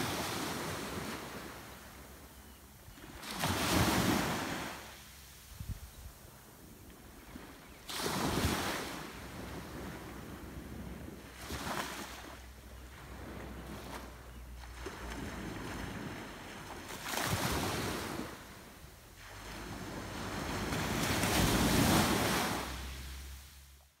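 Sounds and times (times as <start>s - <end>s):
small waves breaking on shore: 0.0s - 23.8s
wind rumble on microphone: 5.5s - 23.2s.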